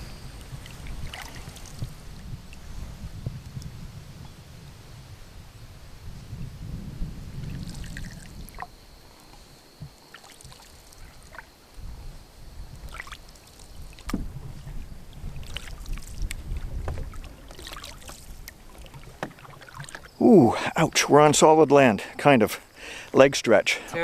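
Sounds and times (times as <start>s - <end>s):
paddle strokes splashing: 0.0s - 2.6s, 9.3s - 11.5s, 12.8s - 21.5s
faint high whine: 0.0s - 14.0s, 19.4s - 24.0s.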